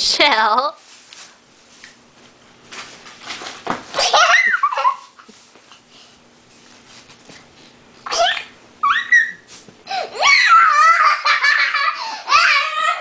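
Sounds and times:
girl laughing: 0:04.0 - 0:05.3, 0:08.1 - 0:13.0.

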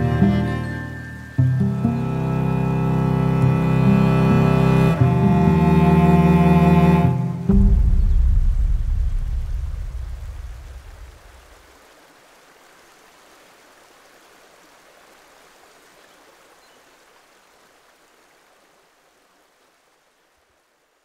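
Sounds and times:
low music notes: 0:00.0 - 0:11.5
running water rushing: 0:00.0 - 0:21.0.

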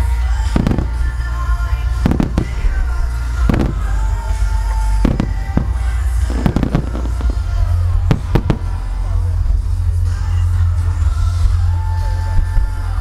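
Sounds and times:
deep rumble of fireworks: 0:00.0 - 0:13.0
music playing: 0:00.0 - 0:13.0
firework shells bursting: 0:00.6 - 0:01.1, 0:02.0 - 0:09.0.

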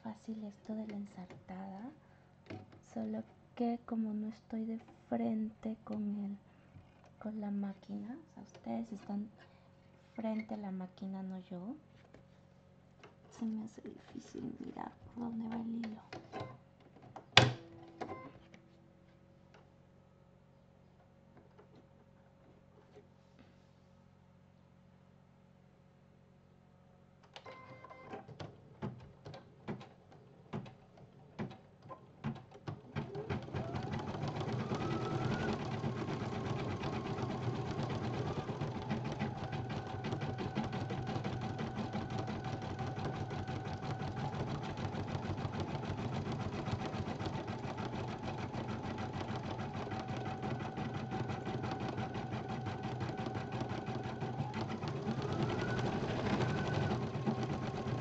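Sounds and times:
embroidery machine stitching: 0:28.0 - 0:58.0.

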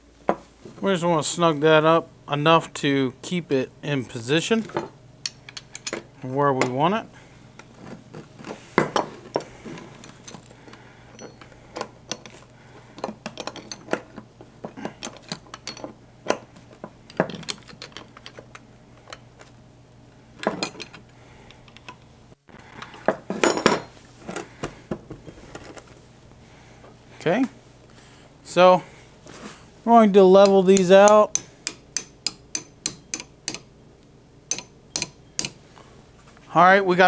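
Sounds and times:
metal tools knocking on workbench: 0:23.1 - 0:23.9
wrench clicking on bolts: 0:30.4 - 0:33.7, 0:34.5 - 0:35.6.

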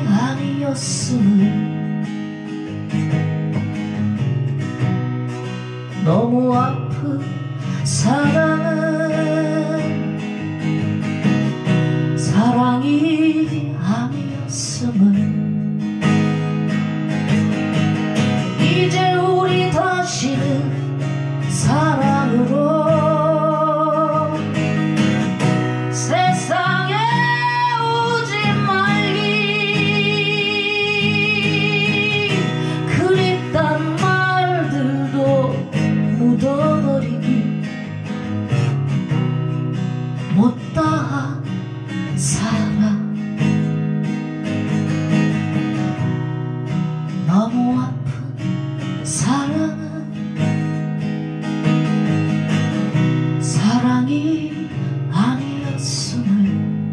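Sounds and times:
person singing with vibrato: 0:00.0 - 0:02.0, 0:06.0 - 0:10.3, 0:12.2 - 0:15.5, 0:18.4 - 0:24.8, 0:25.6 - 0:37.8, 0:40.2 - 0:43.7, 0:47.1 - 0:50.6, 0:53.4 - 0:56.8
acoustic guitar strumming: 0:00.0 - 0:56.9.

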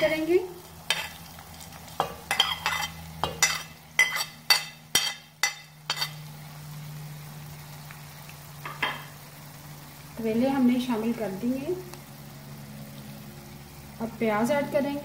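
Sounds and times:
spoon scraping plate and pot: 0:02.3 - 0:06.2.

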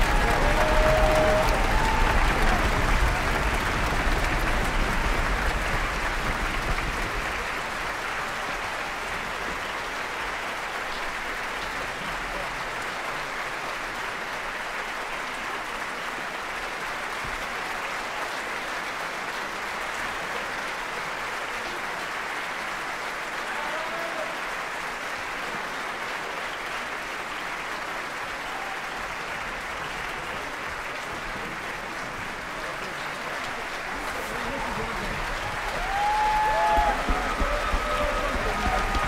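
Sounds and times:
audience clapping: 0:00.0 - 0:39.0.

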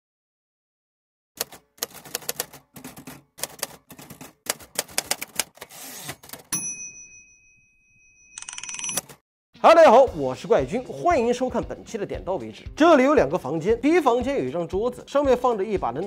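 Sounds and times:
typewriter carriage rasp: 0:01.4 - 0:06.6
typewriter keys clacking: 0:01.4 - 0:06.6, 0:08.4 - 0:09.2
typewriter bell ding: 0:06.2 - 0:09.2.

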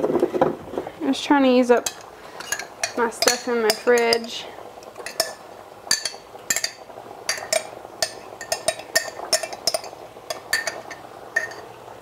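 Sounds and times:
spoon clinking against glass jar: 0:01.9 - 0:04.3, 0:05.0 - 0:11.6.

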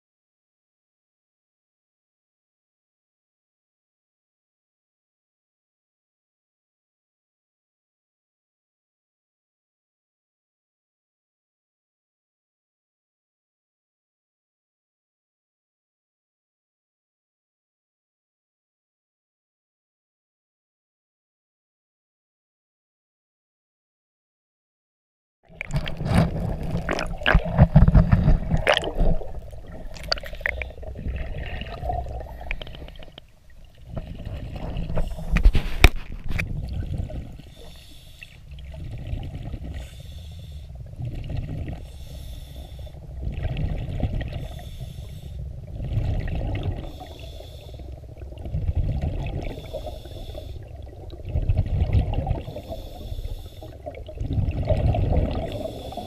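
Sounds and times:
water splashing: 0:25.5 - 0:56.0
diver breathing through regulator: 0:34.5 - 0:36.0, 0:37.4 - 0:38.6, 0:39.7 - 0:40.9, 0:41.7 - 0:43.2, 0:44.3 - 0:45.6, 0:46.8 - 0:48.1, 0:49.5 - 0:50.8, 0:52.4 - 0:53.9, 0:55.4 - 0:56.0.

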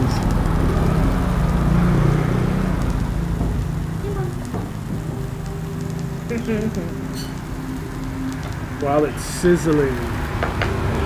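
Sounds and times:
steak sizzling: 0:00.0 - 0:11.0.

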